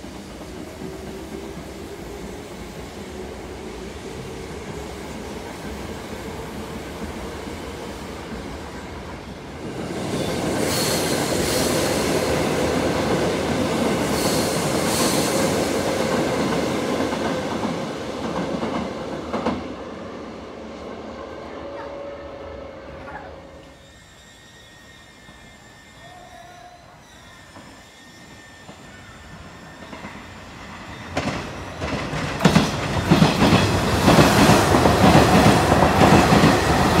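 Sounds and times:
steady train noise: 0.0 - 37.0
train wheels clacking over rail joints: 31.0 - 37.0.

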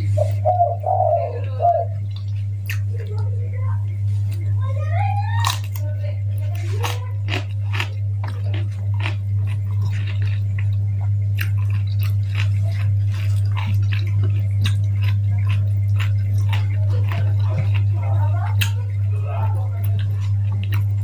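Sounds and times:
steady low hum: 0.0 - 21.0
wet chewing mouth clicks: 2.0 - 3.1, 6.8 - 21.0.

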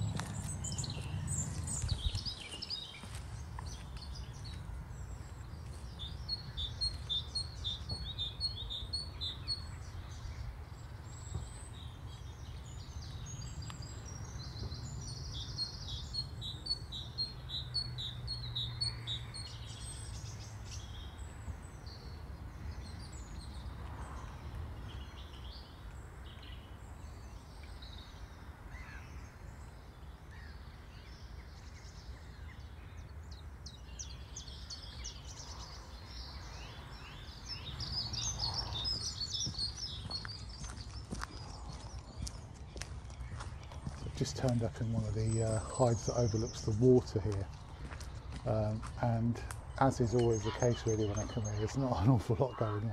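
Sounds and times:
songbirds chirping: 0.0 - 52.9.

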